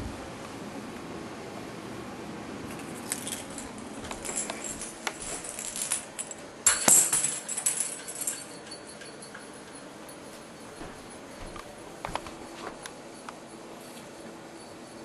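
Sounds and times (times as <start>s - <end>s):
cat toy jingling and rattling: 2.9s - 11.3s.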